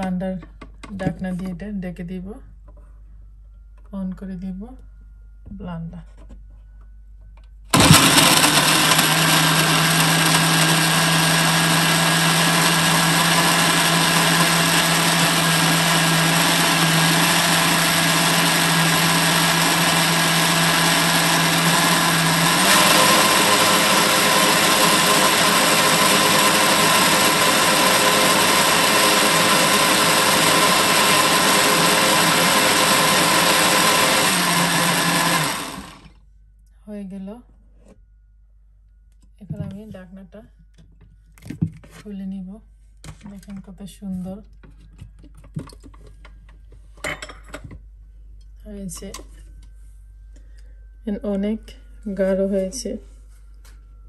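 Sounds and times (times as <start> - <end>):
electric blender running: 7.7 - 36.1.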